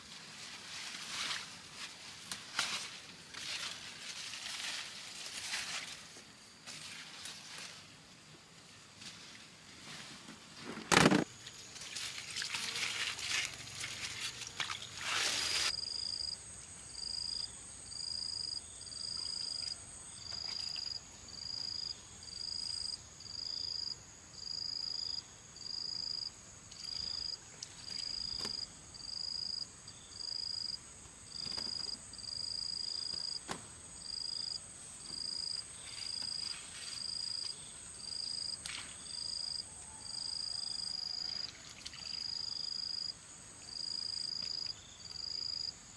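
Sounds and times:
rustling: 0.0 - 8.0, 9.0 - 15.8
insects chirping: 10.9 - 45.9
steady high insect buzz: 11.2 - 39.6, 40.2 - 45.9.

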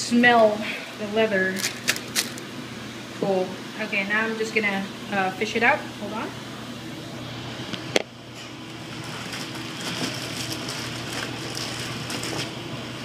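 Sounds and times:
plastic wrapping crinkling: 1.5 - 2.4, 8.9 - 12.6.

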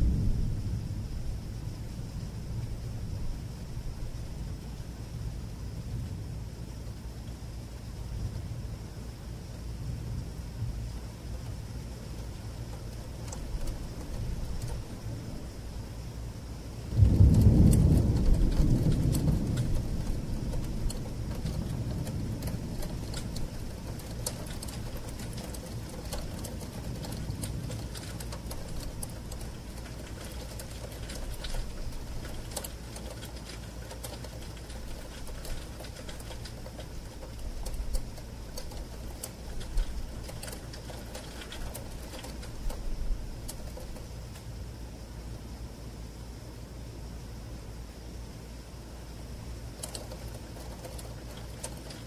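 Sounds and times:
distant thunder rumble: 0.0 - 44.6
steady rain: 0.0 - 52.0
raindrops ticking on window glass: 10.7 - 16.1, 16.8 - 44.6, 49.6 - 52.0.

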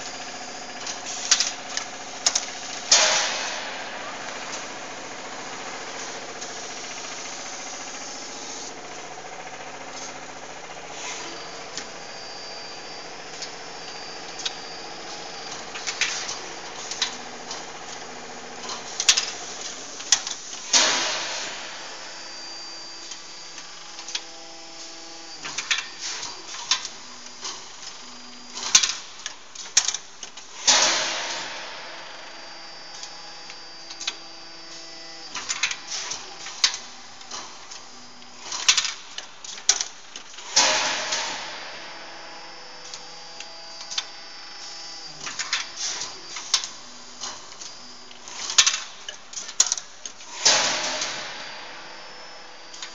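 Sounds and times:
hydraulic machinery hum: 0.0 - 29.5, 30.5 - 52.9.

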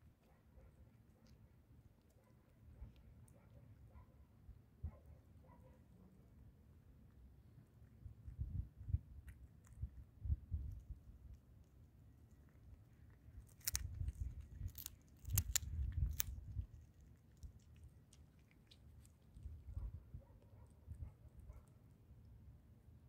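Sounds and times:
cat chewing: 0.0 - 3.9, 5.2 - 22.6
bones cracking: 13.0 - 19.5.

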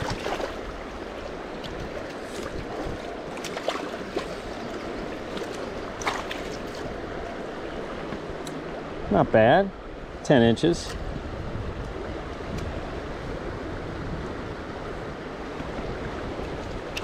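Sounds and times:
river water running over rocks: 0.0 - 9.0.

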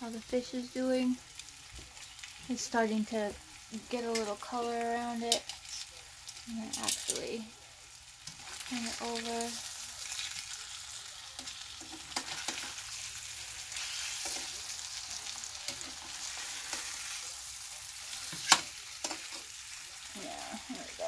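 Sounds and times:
fish sizzling in frying pan: 0.0 - 21.0
metal tongs clicking on pan: 5.3 - 7.2, 15.6 - 17.2, 18.2 - 19.5.

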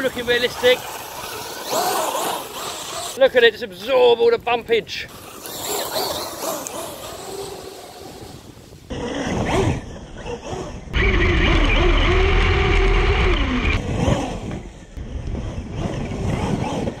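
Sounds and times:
electric motor whining: 0.0 - 3.2, 5.1 - 17.0
heavy rumble: 8.9 - 17.0.

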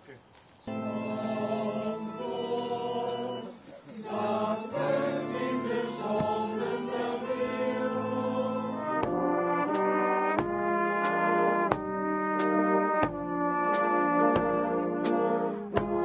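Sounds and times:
choir singing a hymn: 0.7 - 10.0, 14.2 - 16.0.

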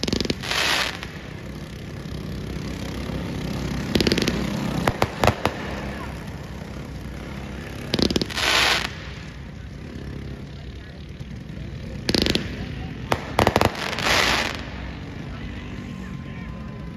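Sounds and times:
sharp firework bangs: 0.0 - 1.5, 3.8 - 6.2, 7.7 - 9.4, 12.0 - 15.0
firework hiss: 0.0 - 1.6, 7.8 - 9.5, 12.1 - 15.0
fireworks crackling: 0.0 - 16.1.

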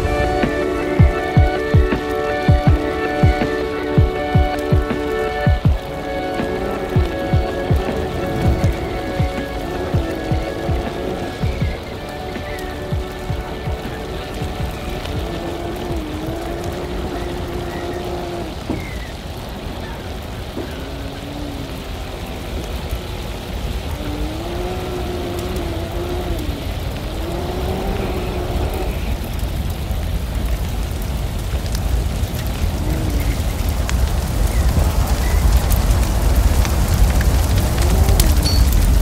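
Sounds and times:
engine revving: 0.0 - 19.0, 20.5 - 29.4
tyre and wind noise: 0.0 - 39.0.

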